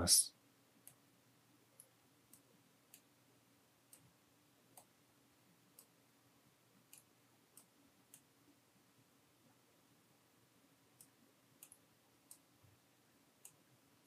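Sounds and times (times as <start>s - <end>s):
faint low hum: 0.0s - 14.0s
computer mouse clicks: 1.8s - 3.1s, 3.9s - 4.1s, 5.7s - 6.0s, 6.9s - 8.3s, 11.0s - 12.5s.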